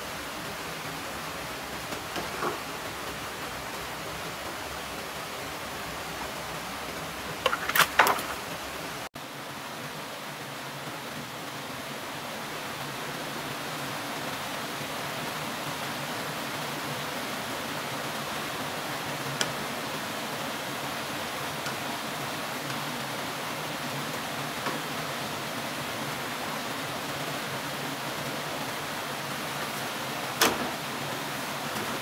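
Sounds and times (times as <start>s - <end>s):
waterfall and stream rushing: 0.0s - 32.0s
bamboo poles knocking: 7.4s - 8.5s.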